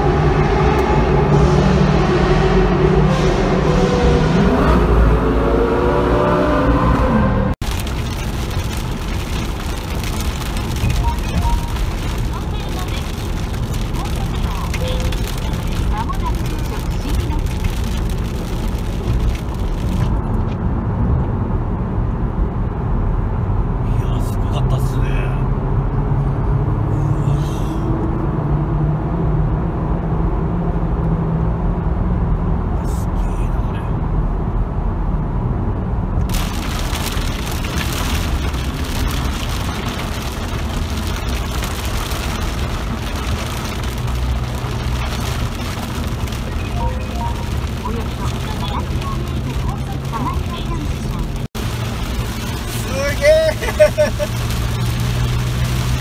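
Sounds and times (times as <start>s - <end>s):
car engine and road noise: 0.0s - 56.0s
rain hiss on wet tyres: 7.6s - 20.2s, 36.2s - 56.0s.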